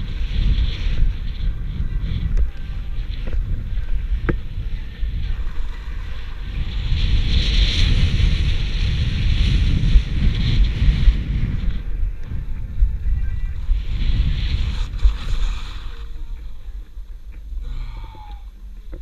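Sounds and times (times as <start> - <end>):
skis scraping over snow: 0.0 - 17.6
wind buffeting microphone: 0.0 - 19.0.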